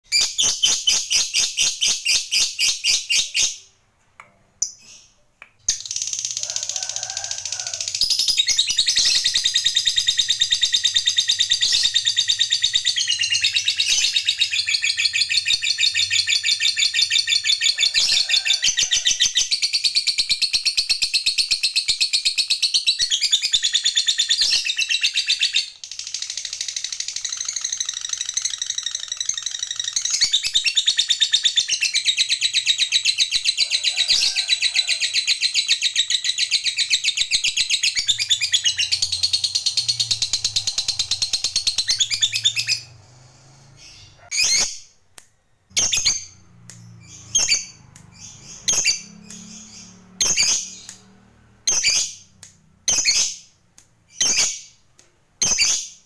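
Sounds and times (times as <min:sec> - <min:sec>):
lovebird chattering trill: 0:24.5 - 0:42.9.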